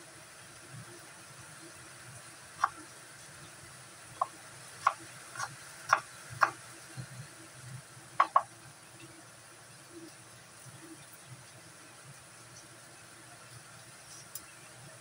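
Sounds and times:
knife chopping on wooden board: 4.2 - 6.6, 8.2 - 8.5.

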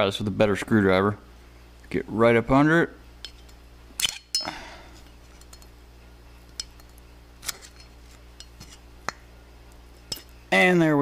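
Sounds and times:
sharp metallic clinks: 3.2 - 4.7.

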